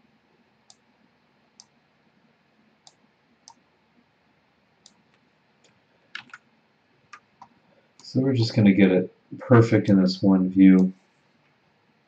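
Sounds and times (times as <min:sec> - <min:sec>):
computer mouse clicking: 0:01.6 - 0:01.8, 0:02.8 - 0:03.6, 0:04.8 - 0:06.4.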